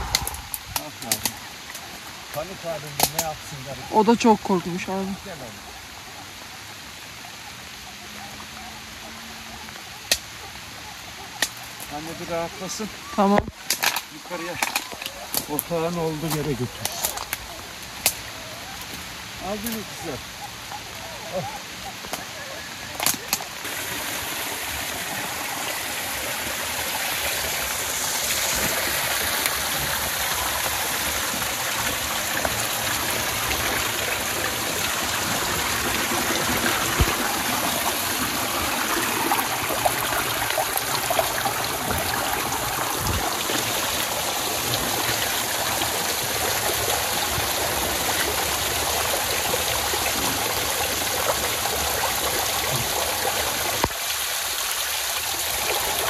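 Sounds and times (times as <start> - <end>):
water streaming and dripping: 0.0 - 56.0
water splashing on waders: 19.8 - 56.0.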